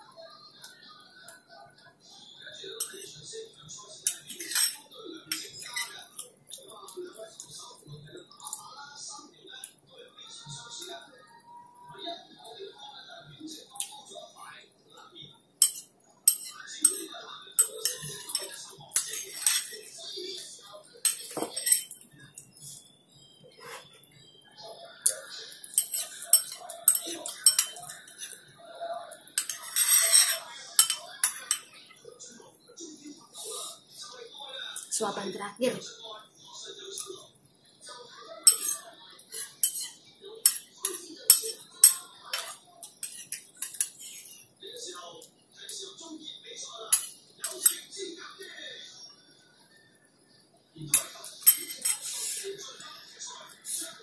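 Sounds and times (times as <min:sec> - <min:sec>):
spoon clinking on ceramic bowl: 0:04.1 - 0:06.0, 0:15.6 - 0:19.8, 0:21.0 - 0:22.0, 0:25.1 - 0:28.4, 0:29.4 - 0:31.8, 0:38.5 - 0:44.4, 0:46.9 - 0:47.8, 0:50.9 - 0:52.1.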